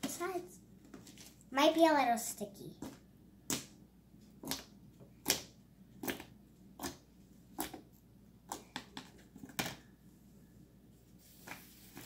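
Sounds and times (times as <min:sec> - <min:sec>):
slime clicking and scraping: 0:04.4 - 0:09.6.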